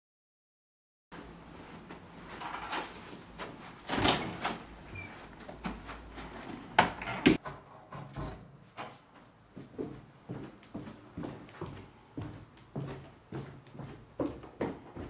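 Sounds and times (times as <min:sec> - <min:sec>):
door opening and shutting: 0:02.4 - 0:09.1.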